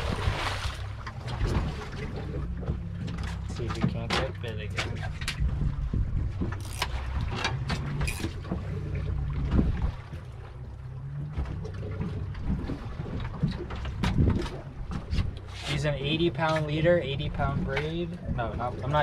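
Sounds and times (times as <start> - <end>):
fishing boat engine rumble: 0.0 - 19.0
wind on microphone: 4.8 - 10.3, 11.3 - 19.0.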